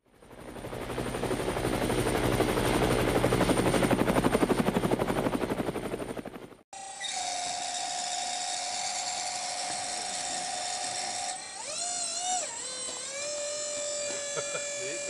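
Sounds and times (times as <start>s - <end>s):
electric motor whining: 6.8s - 15.0s.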